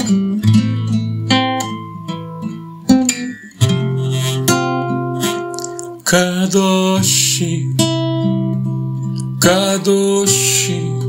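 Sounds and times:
classical guitar strummed slowly: 0:00.0 - 0:11.0
man singing: 0:05.2 - 0:08.0, 0:09.2 - 0:11.0.

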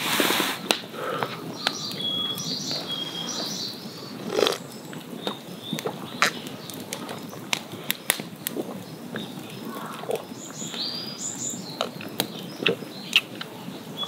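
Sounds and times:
bird calling: 0:01.0 - 0:07.1, 0:09.2 - 0:14.0
person gulping and swallowing: 0:04.1 - 0:10.4, 0:11.8 - 0:13.6.

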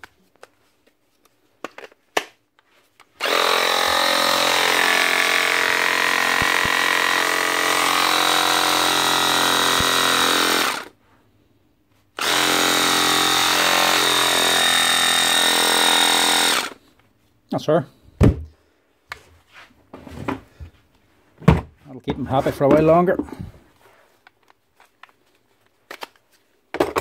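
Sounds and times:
electric clippers whining: 0:03.2 - 0:10.9, 0:12.2 - 0:16.8.

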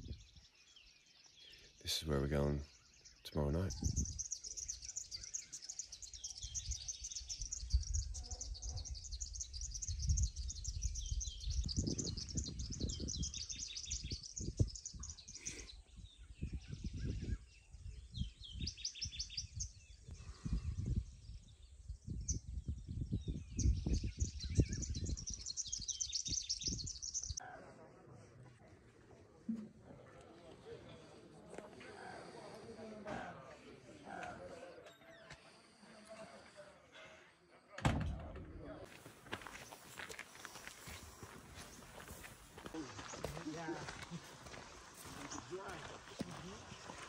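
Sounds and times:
birds chirping and trilling: 0:00.0 - 0:27.4, 0:31.8 - 0:37.6, 0:38.5 - 0:47.0
low microphone rumbles: 0:08.8 - 0:15.2.

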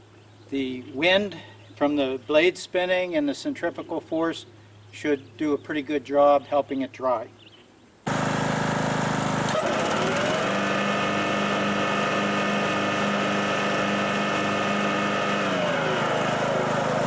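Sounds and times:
riding mower running with blades spinning: 0:08.1 - 0:17.0.

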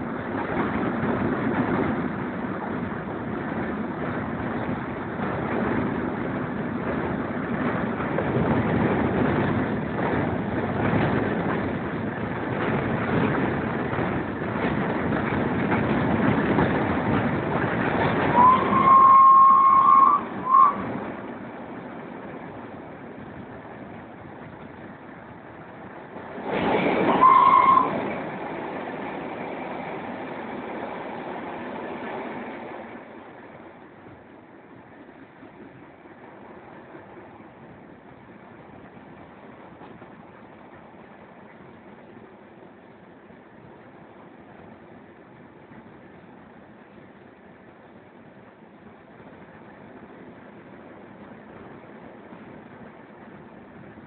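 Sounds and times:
train running on track: 0:00.0 - 0:54.0
wind buffeting microphone: 0:00.0 - 0:54.0
locomotive whistle: 0:18.3 - 0:20.9, 0:27.1 - 0:28.0.

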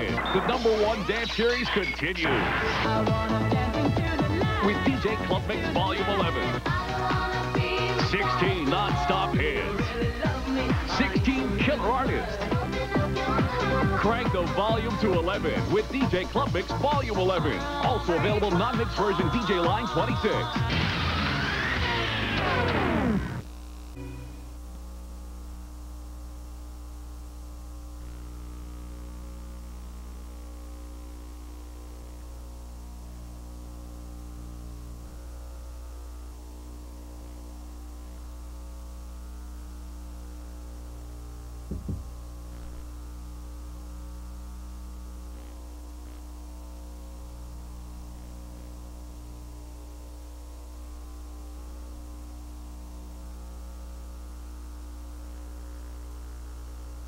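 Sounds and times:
electrical mains hum: 0:00.0 - 0:57.0
brief pop: 0:41.7 - 0:42.1.

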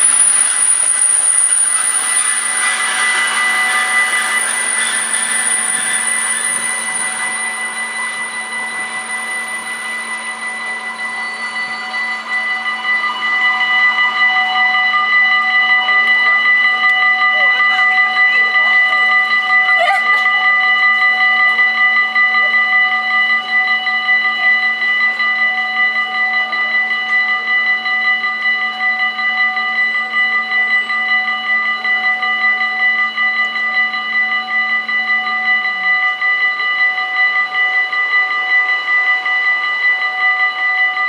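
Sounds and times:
level crossing warning bells: 0:00.0 - 0:41.0.

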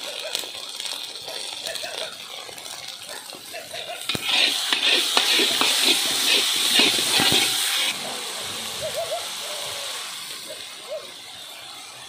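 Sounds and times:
food sizzling in hot oil: 0:00.0 - 0:12.0
ladle scraping a pan: 0:03.7 - 0:08.0.

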